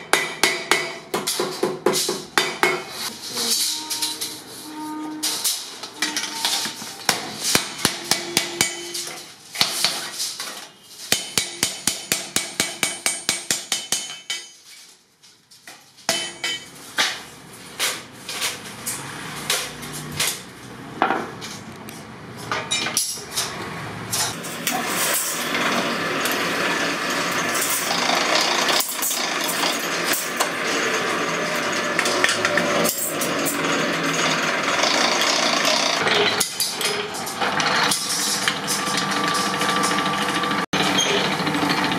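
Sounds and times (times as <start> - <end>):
hammer striking iron sheet: 7.1 - 10.1, 11.1 - 14.5
metal working machine noise: 22.5 - 41.9.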